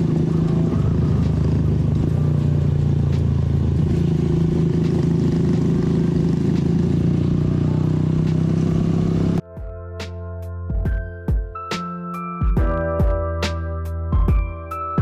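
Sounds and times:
motorcycle engine running: 0.0s - 9.4s.

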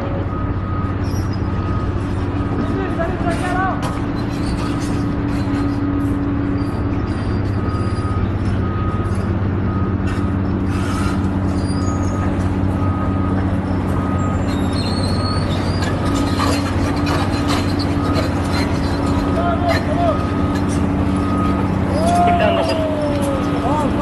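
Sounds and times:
diesel engine running: 0.0s - 24.0s
reversing alarm beeping: 0.0s - 24.0s
steel tracks clanking on rock: 14.4s - 22.6s.

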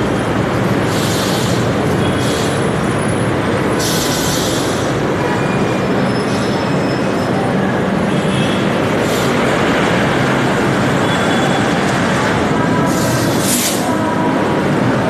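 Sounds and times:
train wheels rumbling on rails: 0.0s - 15.0s
high wheel squealing: 0.1s - 8.2s.

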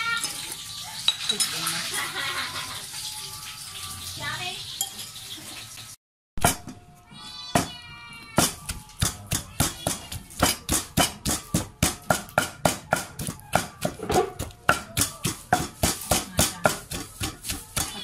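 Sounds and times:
wooden pestle pounding in mortar: 8.4s - 18.0s.

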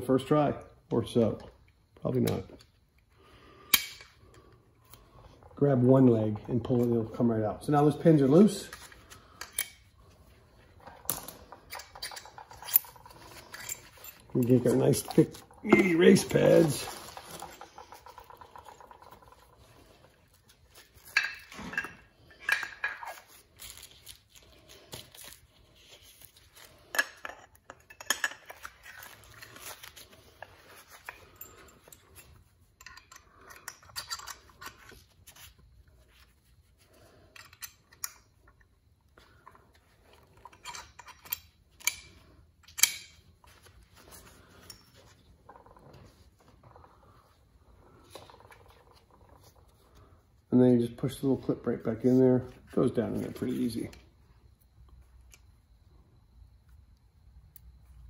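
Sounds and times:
light metal clinks and taps: 31.1s - 34.8s.

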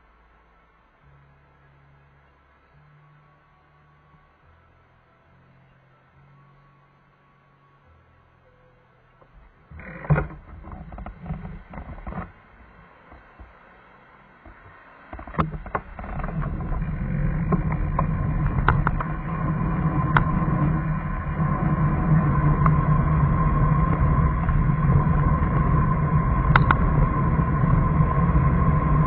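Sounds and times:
road and wind noise: 9.2s - 29.0s
vehicle clicks and rattles: 9.3s - 13.5s, 14.4s - 27.6s.

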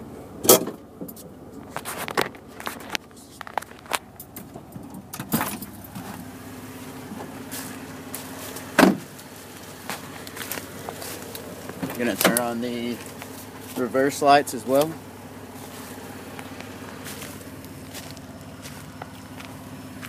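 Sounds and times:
low hum: 0.0s - 20.0s
clicks and rustling: 0.5s - 6.3s, 8.2s - 13.8s
car door slam: 8.7s - 9.1s.

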